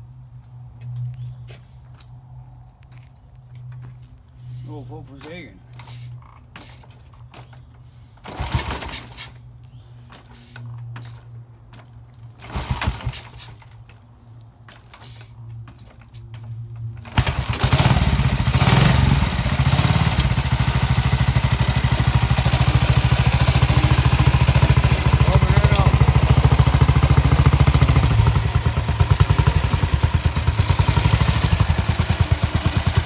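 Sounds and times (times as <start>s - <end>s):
motorcycle engine kick-start spins: 8.2s - 9.4s, 12.3s - 13.9s, 14.7s - 33.0s
motorcycle engine running: 17.0s - 33.0s.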